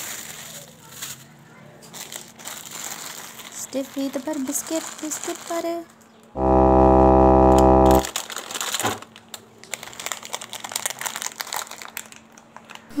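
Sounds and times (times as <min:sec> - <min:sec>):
plastic packet crinkling: 0:01.9 - 0:05.7, 0:08.0 - 0:12.9
loud buzzing tone: 0:06.4 - 0:08.1.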